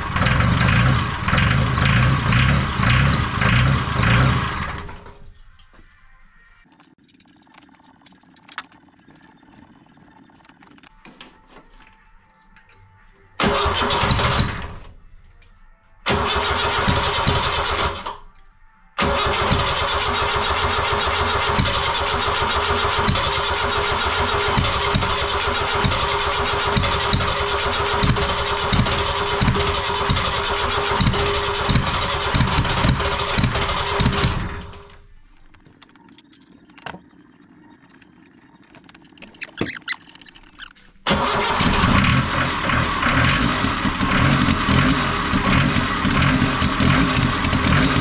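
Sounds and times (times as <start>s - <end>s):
diesel engine cranking: 0.0s - 5.2s, 13.4s - 14.9s, 16.1s - 18.2s, 19.0s - 48.0s
starter motor whine: 36.8s - 48.0s.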